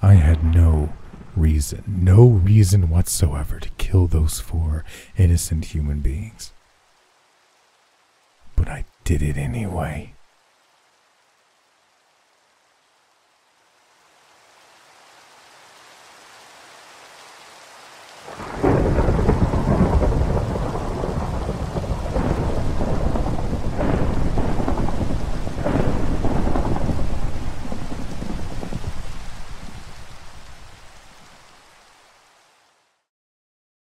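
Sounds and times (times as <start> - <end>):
thunder rolling and cracking: 0.0 - 2.8, 18.3 - 30.3
rain: 0.0 - 33.1.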